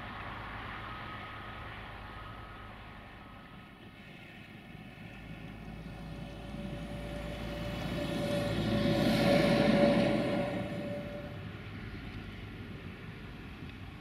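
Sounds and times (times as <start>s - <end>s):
rail vehicle engine hum: 0.0s - 14.0s.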